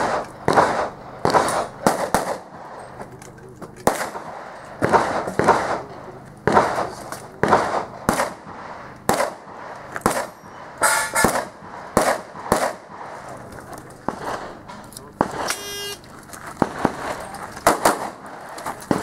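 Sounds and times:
handgun shots: 0:09.1 - 0:13.0, 0:16.6 - 0:19.0.

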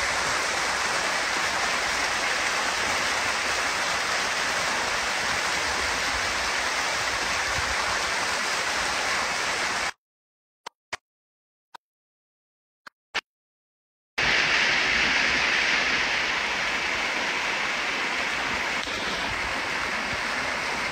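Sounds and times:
rushing floodwater: 0:00.0 - 0:09.9, 0:14.2 - 0:20.9.

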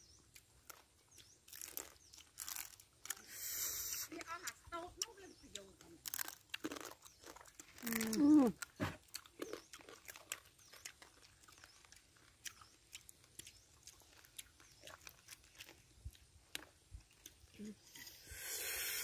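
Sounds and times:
chewing: 0:00.0 - 0:18.9
crab shell cracking and crunching: 0:00.3 - 0:03.3, 0:05.9 - 0:17.5.

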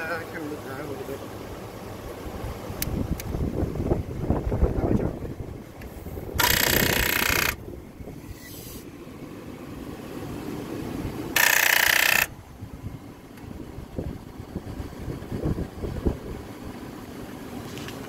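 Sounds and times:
starter solenoid clicking rapidly: 0:06.4 - 0:07.6, 0:11.3 - 0:12.4.

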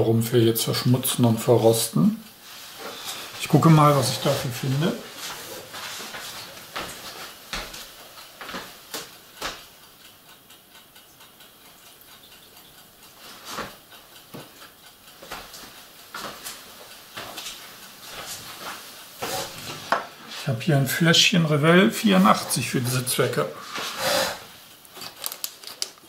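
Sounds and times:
small items clicking and knocking: 0:24.8 - 0:26.0.

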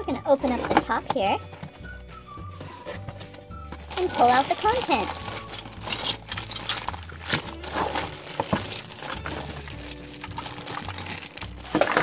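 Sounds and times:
pop background music: 0:00.0 - 0:12.0
plastic bags crinkling: 0:03.8 - 0:12.0.

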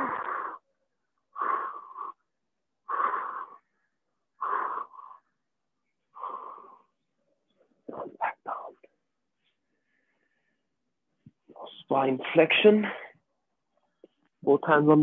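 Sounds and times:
person breathing hard: 0:00.0 - 0:07.0.

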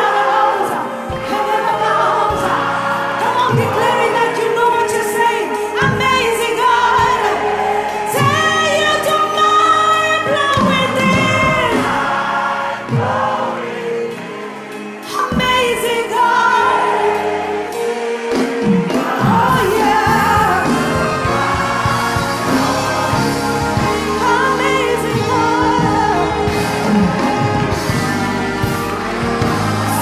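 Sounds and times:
choir singing: 0:00.0 - 0:30.0
live band playing: 0:00.0 - 0:30.0.

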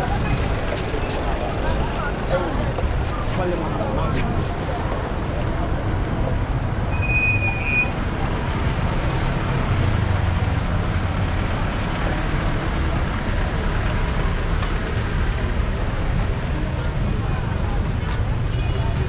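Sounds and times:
traffic and buses rumbling: 0:00.0 - 0:19.0.

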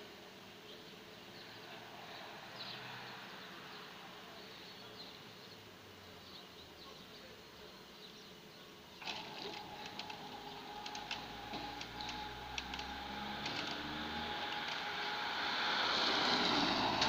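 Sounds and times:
scattered clicks: 0:09.0 - 0:15.2
car approaching: 0:09.1 - 0:17.0.

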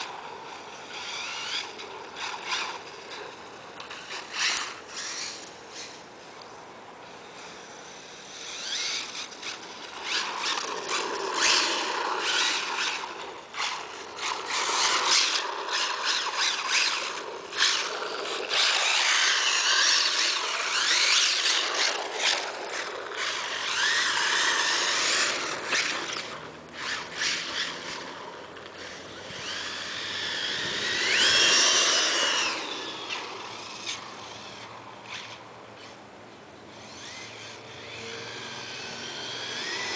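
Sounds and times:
electric motor whining: 0:00.0 - 0:06.1, 0:07.2 - 0:36.0, 0:36.7 - 0:39.9
tyres scrubbing on asphalt: 0:07.5 - 0:35.4.

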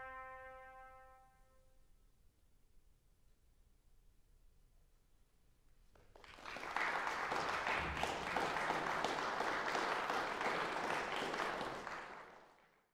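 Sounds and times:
audience applause: 0:06.1 - 0:12.8.

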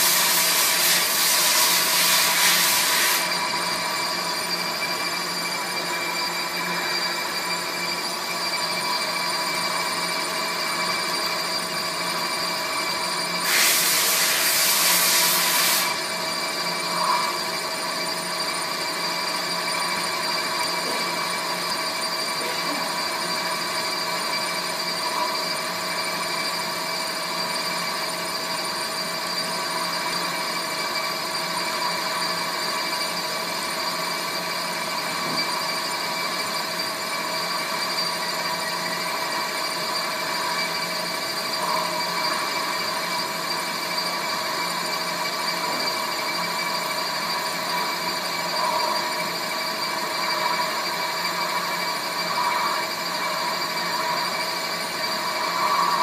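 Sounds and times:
metal lathe humming and whining: 0:00.0 - 0:56.0
loud hiss: 0:13.4 - 0:16.0.

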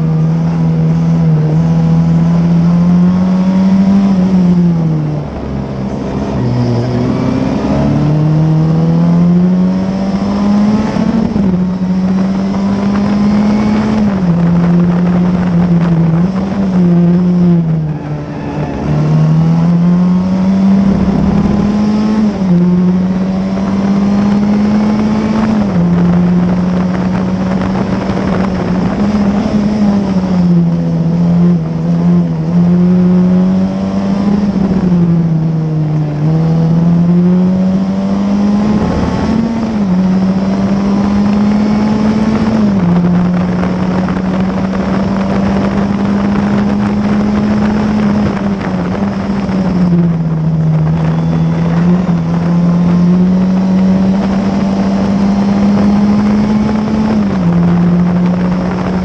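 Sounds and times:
race car engine revving through gears: 0:00.0 - 0:59.0
wind rushing: 0:12.6 - 0:31.8.

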